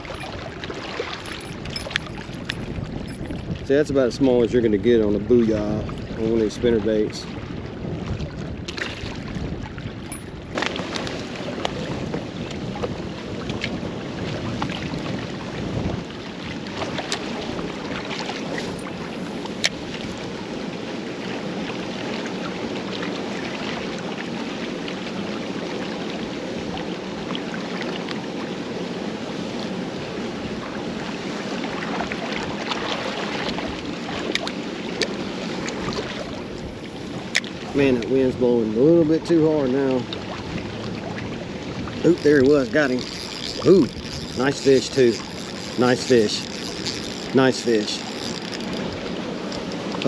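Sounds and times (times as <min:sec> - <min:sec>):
wind buffeting microphone: 0:00.0 - 0:20.2, 0:35.7 - 0:50.0
water lapping against rocks: 0:00.0 - 0:20.4, 0:30.5 - 0:50.0.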